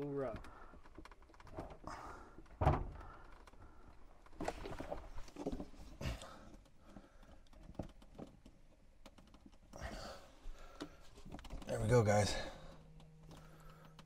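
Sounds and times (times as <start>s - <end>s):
hoses and plastic fittings handled: 2.4s - 9.8s.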